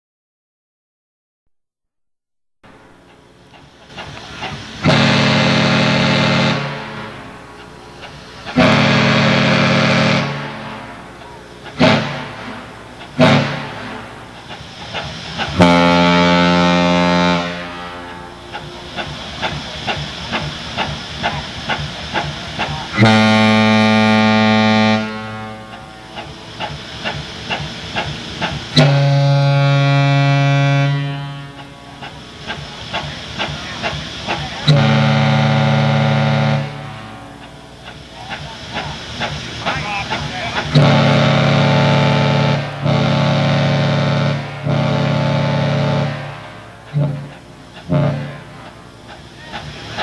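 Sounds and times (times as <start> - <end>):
ship horn blasts: 4.3 - 7.6, 8.3 - 14.3, 15.5 - 19.4, 22.8 - 26.6, 28.7 - 32.2, 33.8 - 37.8, 40.0 - 49.0.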